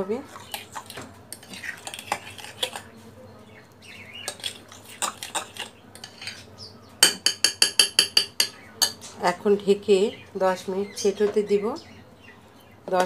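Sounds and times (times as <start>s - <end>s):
spoon stirring thick batter: 0.0s - 9.1s
utensil clinking against bowl: 7.0s - 9.1s.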